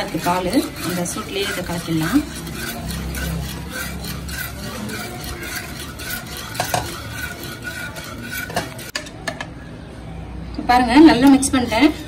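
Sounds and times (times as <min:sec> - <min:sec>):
liquid swishing: 0:00.0 - 0:09.0
whisk clinking in steel saucepan: 0:00.0 - 0:09.2, 0:11.0 - 0:12.0.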